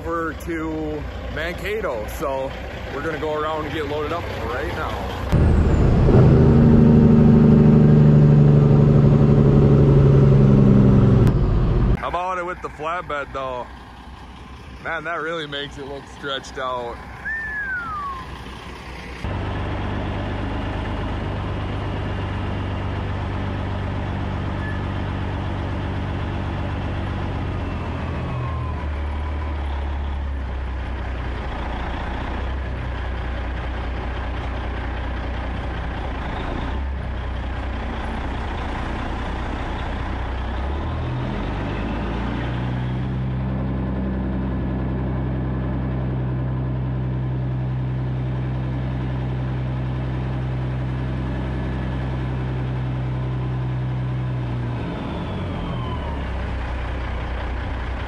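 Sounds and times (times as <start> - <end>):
truck diesel engine running: 0.0 - 58.0.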